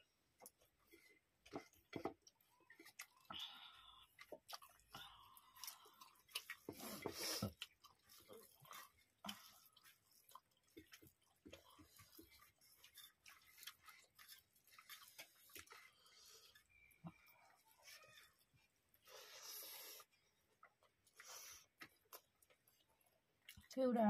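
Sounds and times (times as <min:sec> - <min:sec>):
person chewing: 0:00.3 - 0:23.8
rice mixed by hand on steel plate: 0:05.6 - 0:18.8.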